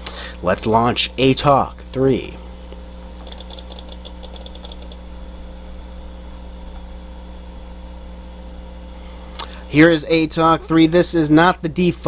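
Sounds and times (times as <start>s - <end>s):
computer hum: 0.0s - 12.0s
faint high hard drive ticks: 2.7s - 5.0s.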